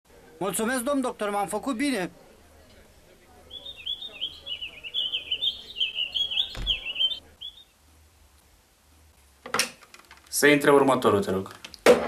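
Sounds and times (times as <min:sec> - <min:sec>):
dull thump: 0:06.5 - 0:07.0.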